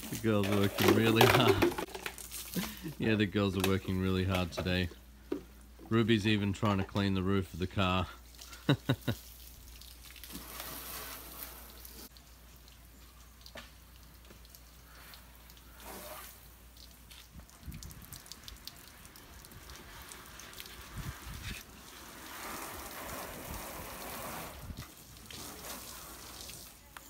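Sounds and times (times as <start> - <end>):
hose water spraying and splashing: 0.0 - 3.2, 7.5 - 27.0
water dripping: 1.0 - 5.8, 8.0 - 23.3.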